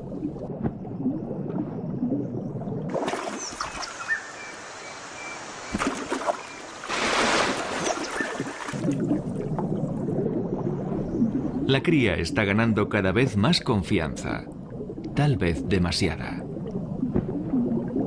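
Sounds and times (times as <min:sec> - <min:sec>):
water lapping and splashing: 0:00.0 - 0:11.7
underwater river gurgling: 0:00.0 - 0:18.0.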